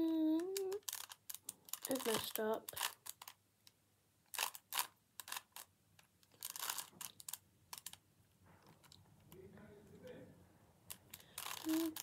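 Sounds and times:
puzzle cube plastic clicks: 0:00.4 - 0:08.0, 0:10.9 - 0:12.0.

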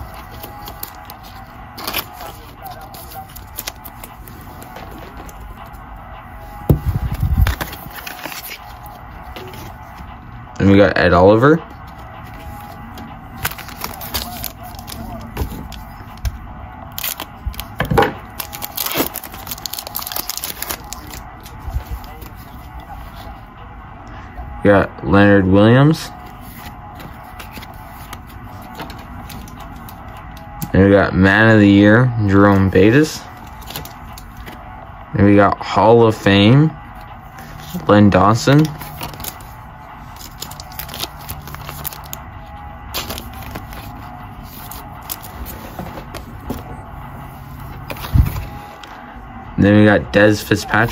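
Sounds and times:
plastic wrapper crinkling and tearing: 0:00.0 - 0:04.3, 0:13.4 - 0:16.3, 0:16.9 - 0:22.6, 0:38.6 - 0:42.2
trading cards clicking and rustling: 0:00.0 - 0:05.8, 0:06.7 - 0:10.1, 0:11.7 - 0:23.3, 0:26.2 - 0:30.7, 0:32.5 - 0:34.6, 0:37.4 - 0:42.2, 0:42.9 - 0:46.7.

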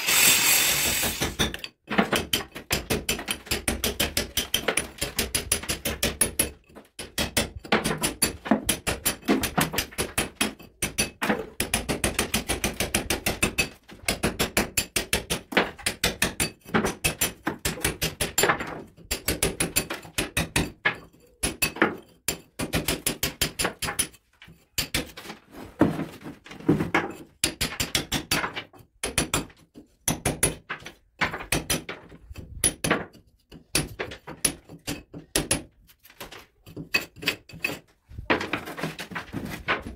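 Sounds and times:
hammer striking steel chisel: 0:00.0 - 0:12.6, 0:36.6 - 0:37.8.

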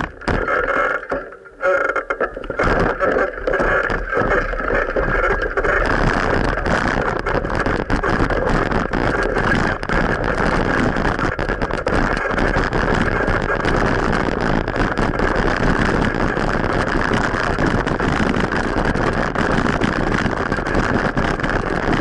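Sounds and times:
small knocks and rattles: 0:00.0 - 0:15.0
bicycle riding rumble: 0:00.0 - 0:22.0.

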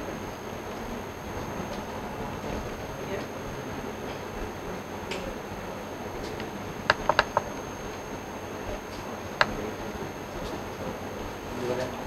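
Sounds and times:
room hiss: 0:00.0 - 0:12.0
mouse and keyboard clicks: 0:06.9 - 0:07.4.

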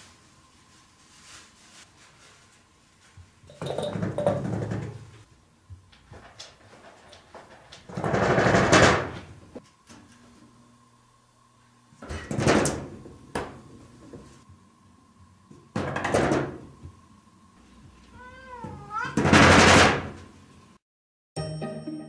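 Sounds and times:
sliding glass door rattling: 0:07.8 - 0:09.2
cat meowing: 0:18.1 - 0:19.2.

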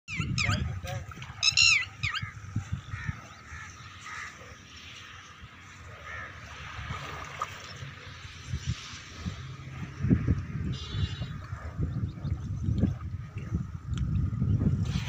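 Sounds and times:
crows cawing faintly: 0:02.2 - 0:04.6, 0:06.0 - 0:06.5.

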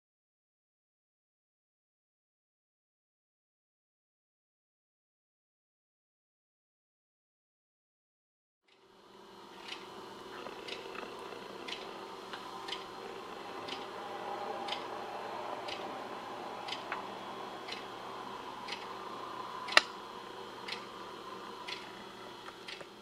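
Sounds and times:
faint steady hum: 0:08.7 - 0:23.0
regular clock-like ticking: 0:09.6 - 0:09.9, 0:10.5 - 0:11.9, 0:12.5 - 0:14.0, 0:14.6 - 0:16.0, 0:16.6 - 0:17.0, 0:17.6 - 0:18.0, 0:18.6 - 0:21.0, 0:21.6 - 0:21.9, 0:22.5 - 0:23.0.

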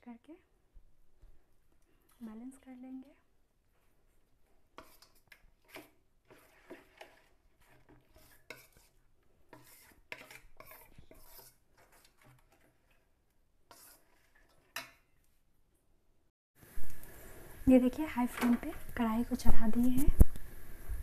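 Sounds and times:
spoon scraping a bowl: 0:04.8 - 0:13.1, 0:13.7 - 0:15.1.

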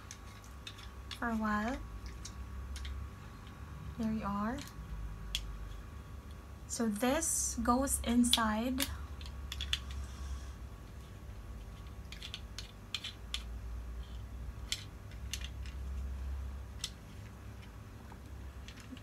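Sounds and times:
plastic and metal parts clicking: 0:08.8 - 0:10.0, 0:11.8 - 0:13.5, 0:14.6 - 0:15.9, 0:18.6 - 0:19.0.

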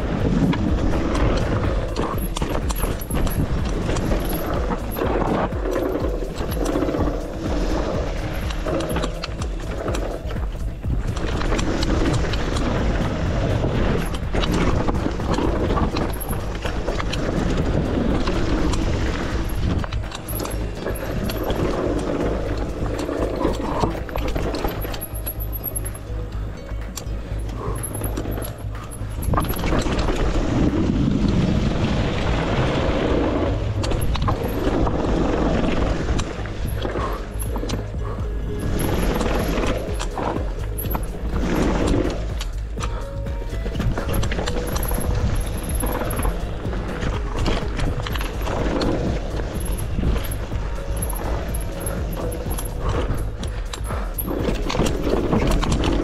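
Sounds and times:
bike parts clicking and rattling: 0:00.0 - 0:31.4, 0:33.4 - 0:56.0
bike tyres rolling rumble: 0:00.0 - 0:56.0
wind on microphone: 0:29.2 - 0:56.0.

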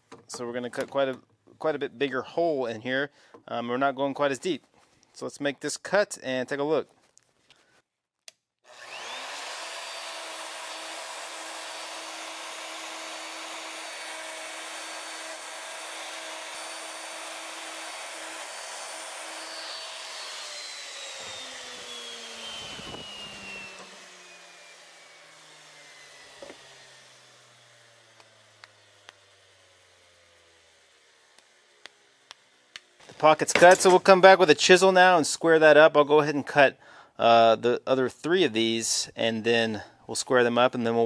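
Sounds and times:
router whining: 0:08.7 - 0:34.2.

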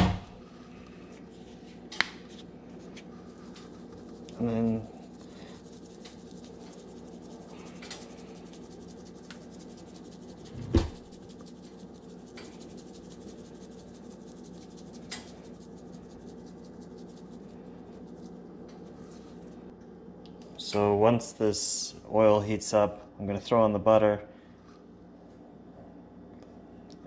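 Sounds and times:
spice shaker rubbing and tapping: 0:00.8 - 0:19.7.

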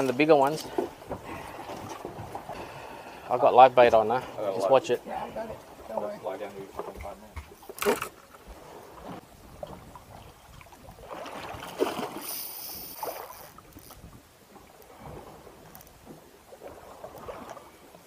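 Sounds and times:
water lapping against boat hull: 0:00.0 - 0:18.0
sharp splashes: 0:10.9 - 0:13.6.

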